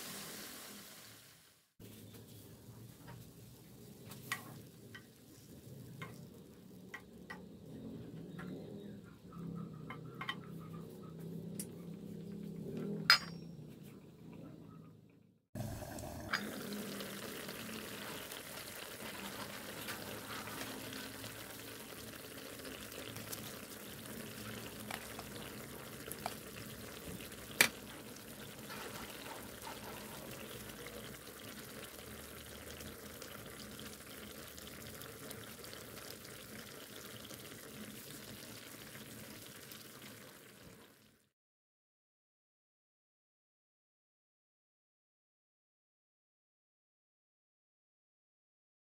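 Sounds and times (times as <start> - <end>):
chicken sizzling in skillet: 0.0 - 7.2, 15.6 - 41.2.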